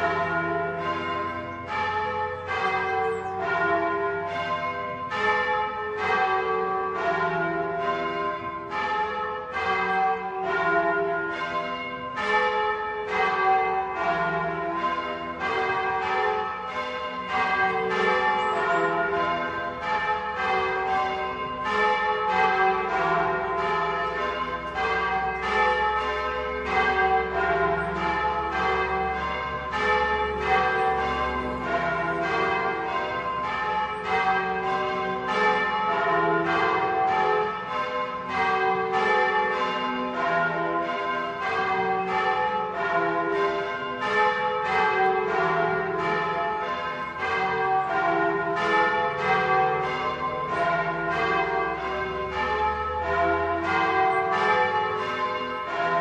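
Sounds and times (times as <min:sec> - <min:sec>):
church bells ringing: 0:00.0 - 0:56.0.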